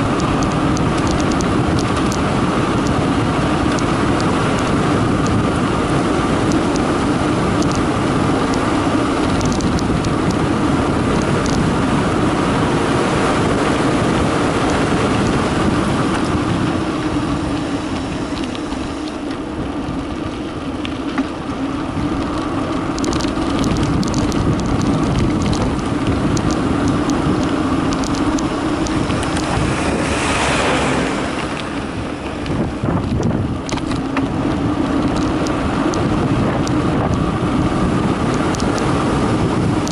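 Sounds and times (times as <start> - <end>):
small ticks and rattles: 0.0 - 3.0, 6.4 - 6.9, 7.5 - 10.4, 11.1 - 11.7, 22.2 - 29.6, 35.0 - 37.2, 38.2 - 39.0
bike tyres rolling on concrete: 0.0 - 39.9
wind rushing over microphone: 0.0 - 39.9.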